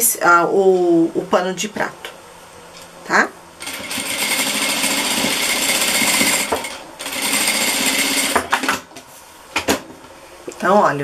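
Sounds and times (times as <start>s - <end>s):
electric sewing machine stitching: 3.6s - 8.9s.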